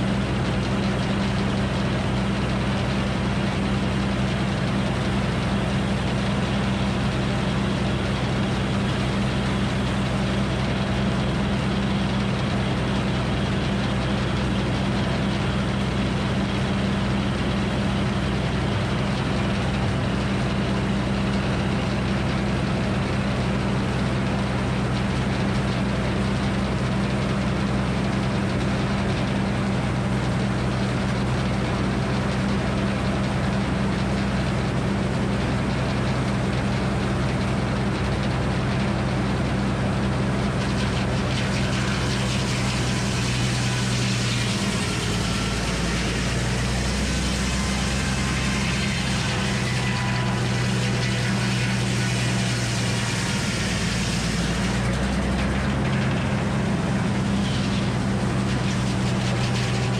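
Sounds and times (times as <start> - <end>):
circular saw blade spinning: 40.5 - 59.9.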